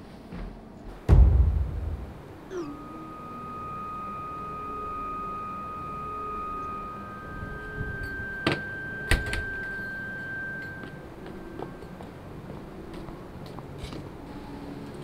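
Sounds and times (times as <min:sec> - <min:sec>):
steady high tone: 0:01.1 - 0:12.9.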